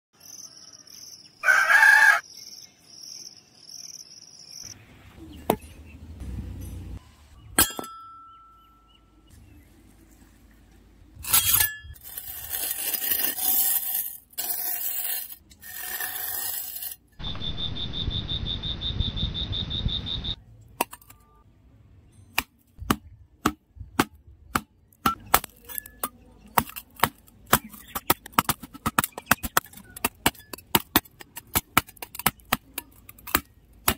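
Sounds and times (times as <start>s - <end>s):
rooster crowing: 0.5s - 2.2s
bird chirps: 17.2s - 20.4s
hand hoe chopping dry soil: 22.4s - 33.9s.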